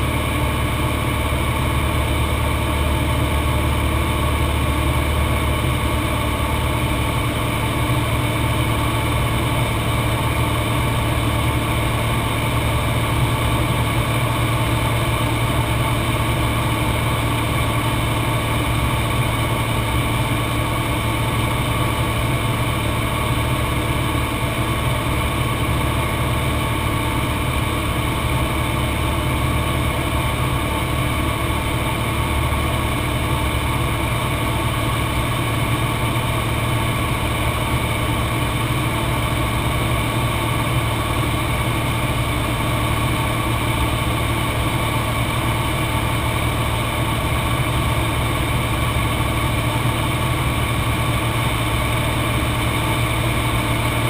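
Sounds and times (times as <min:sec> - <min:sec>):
propeller engine drone in cockpit: 0:00.0 - 0:54.0.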